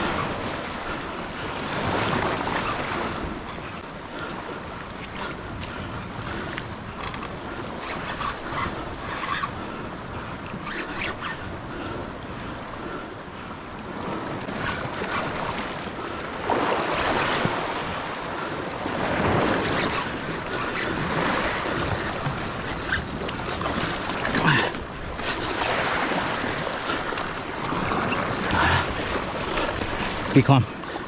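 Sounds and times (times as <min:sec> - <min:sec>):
waves washing over rocks: 0:00.0 - 0:03.8, 0:16.4 - 0:31.0.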